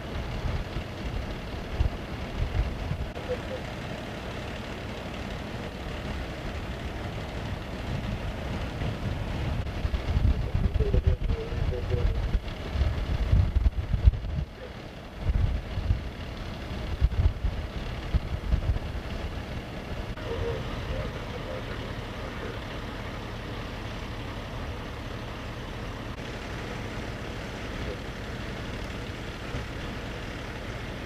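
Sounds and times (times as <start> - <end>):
heavy vehicle engines rumbling: 0.0 - 31.0
wind buffeting microphone: 7.4 - 14.6, 15.2 - 16.2, 16.8 - 21.2.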